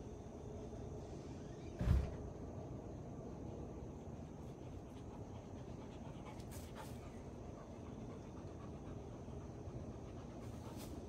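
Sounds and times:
dog panting: 4.0 - 11.0.

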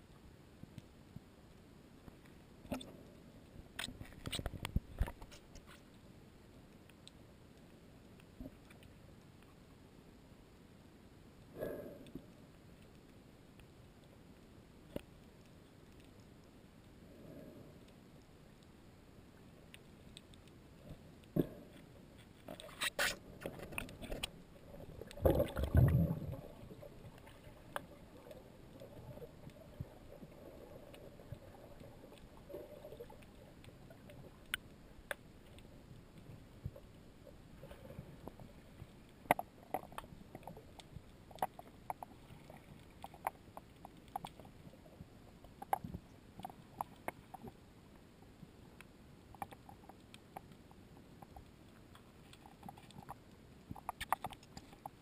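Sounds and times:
faint steady hiss: 0.0 - 55.0
low underwater rush: 23.2 - 41.4
sharp clicks and ticks: 51.2 - 55.0.

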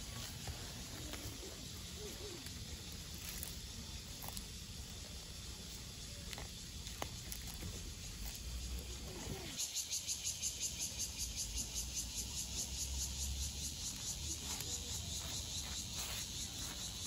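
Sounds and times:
leaves rustling: 0.0 - 9.6.

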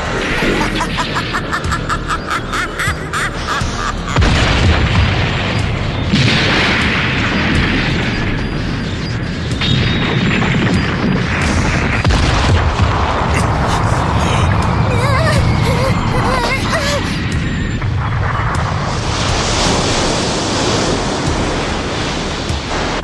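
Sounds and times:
music: 0.0 - 23.0
wavering high tone with crackling: 14.9 - 20.2.

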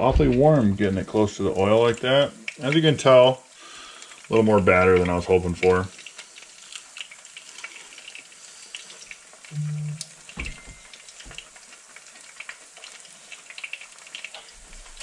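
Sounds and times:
low thumps: 0.0 - 0.8
fish deep-frying in hot oil: 0.0 - 15.0.

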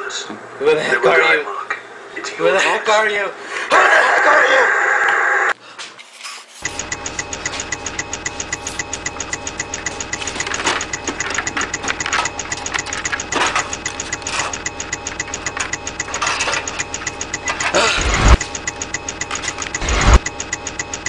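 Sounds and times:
mechanical hum: 0.0 - 21.0
machine knocking pulse: 6.6 - 21.0.

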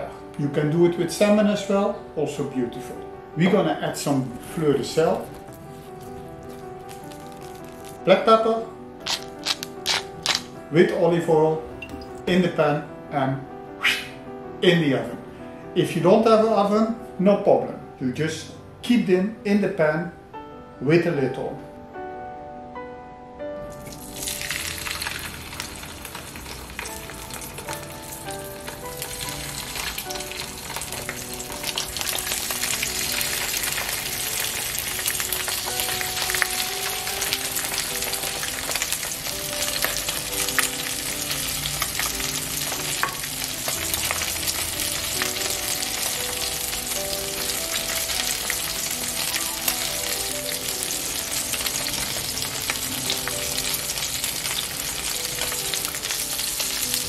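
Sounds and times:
fish fillets sizzling in oil: 4.8 - 8.1, 9.0 - 10.5, 23.7 - 57.0.

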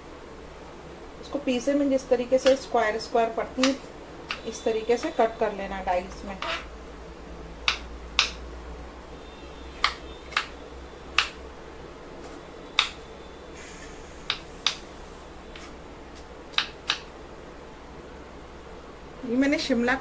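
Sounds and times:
knife chopping on wooden board: 9.8 - 10.5, 12.8 - 13.0.

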